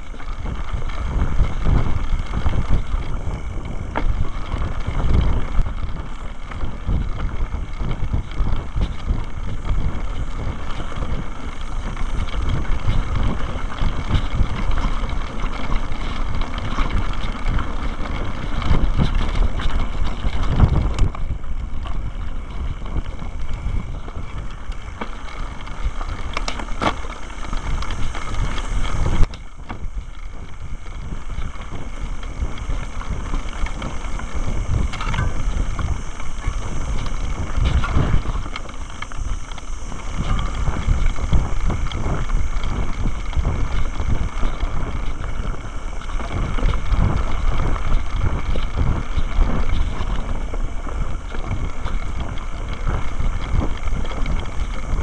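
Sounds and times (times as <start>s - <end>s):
bike tyres rumbling over stones: 0.0s - 55.0s
wind buffeting microphone: 0.0s - 55.0s.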